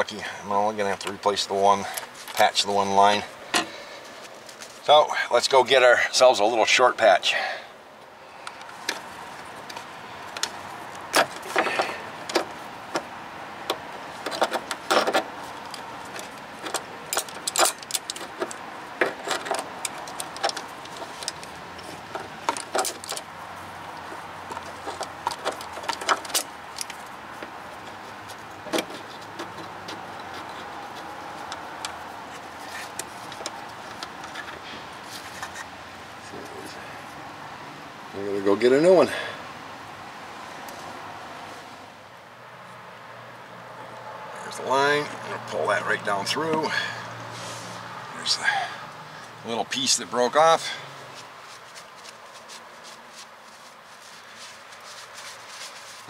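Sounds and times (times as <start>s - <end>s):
steady background noise: 0.0s - 56.0s
metal fittings clinking: 16.7s - 18.6s.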